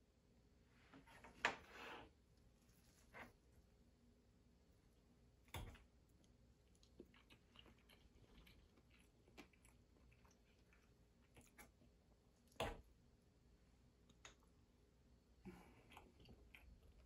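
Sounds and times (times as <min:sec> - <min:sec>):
faint chewing: 0:05.4 - 0:12.7, 0:15.4 - 0:17.0.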